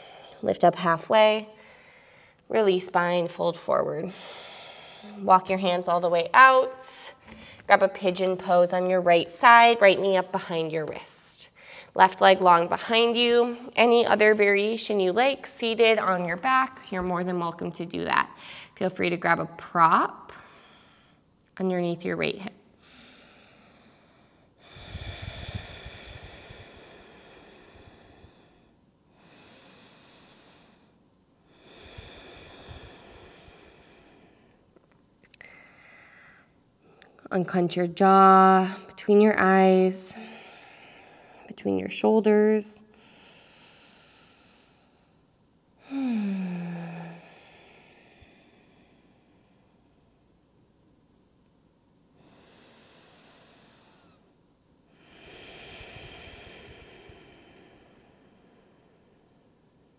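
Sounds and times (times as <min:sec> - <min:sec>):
person breathing through the nose: 0:22.8 - 0:30.9, 0:31.5 - 0:34.6, 0:55.0 - 0:59.2.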